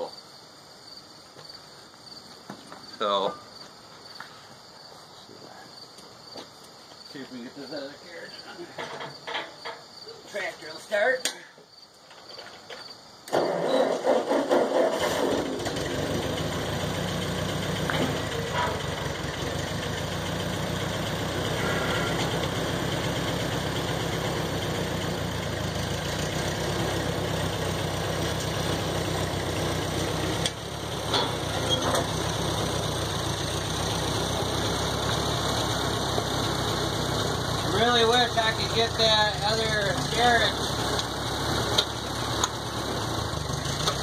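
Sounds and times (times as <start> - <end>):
tractor engine running: 13.3 - 44.0.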